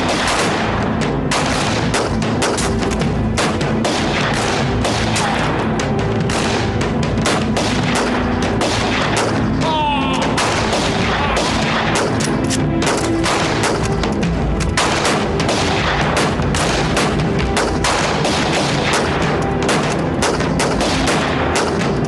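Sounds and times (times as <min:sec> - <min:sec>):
rifles firing: 0:00.0 - 0:22.0.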